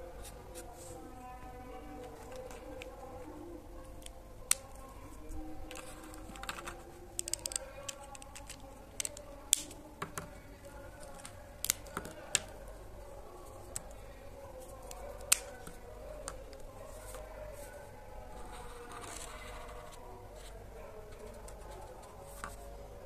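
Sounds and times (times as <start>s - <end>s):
plastic marker caps clicking: 5.7s - 10.4s, 11.0s - 12.6s, 14.8s - 16.6s.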